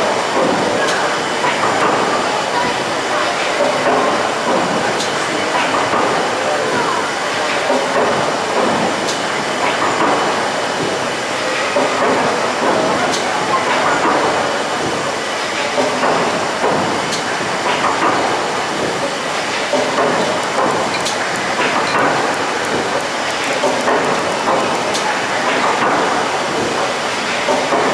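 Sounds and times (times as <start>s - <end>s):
steam engine clattering: 0.0s - 27.9s
sharp mechanical clicks: 19.7s - 26.0s.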